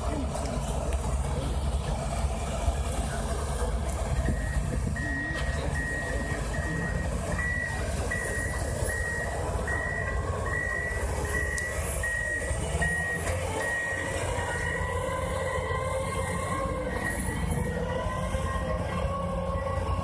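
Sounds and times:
low engine running: 0.0s - 20.0s
reversing alarm beeping: 4.1s - 20.0s.

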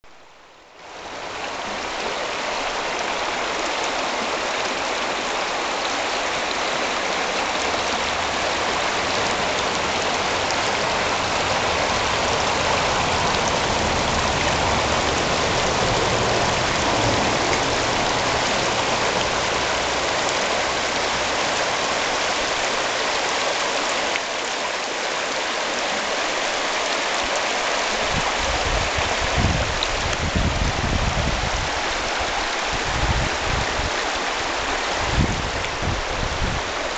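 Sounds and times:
creek rushing over rocks: 0.1s - 36.9s.

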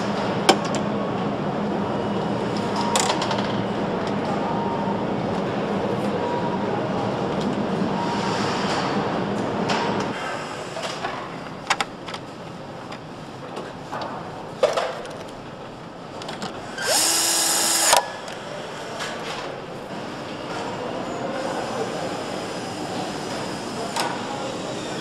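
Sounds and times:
power tool running: 16.7s - 18.1s
machine hum: 16.8s - 18.0s.

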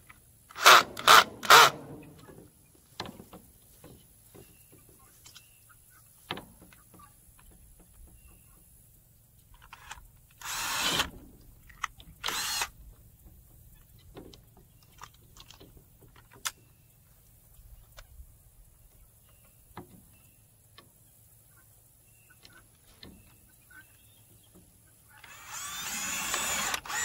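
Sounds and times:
cordless drill into wood: 0.5s - 2.0s, 10.4s - 11.1s, 12.2s - 12.7s, 25.2s - 27.0s.

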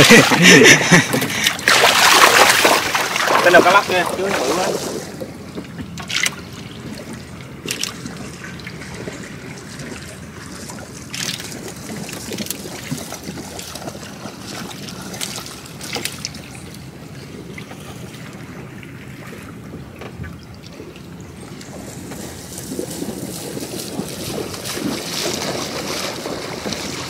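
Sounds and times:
sharp splashes or knocks: 0.0s - 5.3s
water sloshing around boat: 0.0s - 27.0s.

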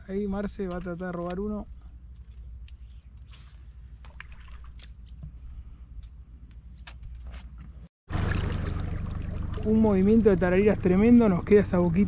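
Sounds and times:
water noise: 3.5s - 5.5s, 8.1s - 12.0s
boat engine rumble: 7.5s - 12.0s.

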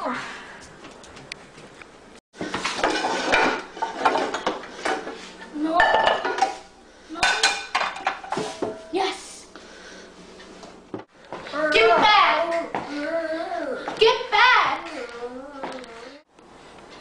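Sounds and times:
pots and pans clattering: 2.4s - 5.2s, 5.8s - 8.9s.

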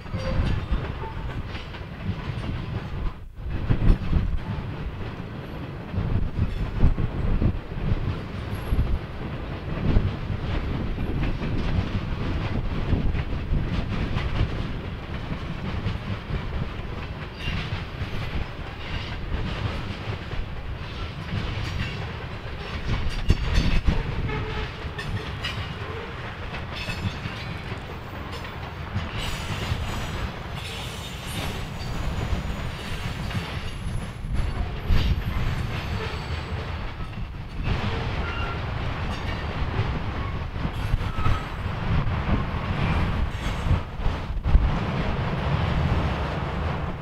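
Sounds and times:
train wheels rumbling on rail: 0.0s - 47.0s
wheels clicking over rail joints: 10.0s - 41.6s.

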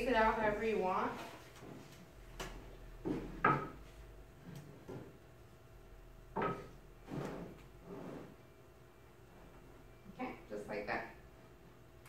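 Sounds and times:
wooden boards knocking: 3.1s - 3.8s.

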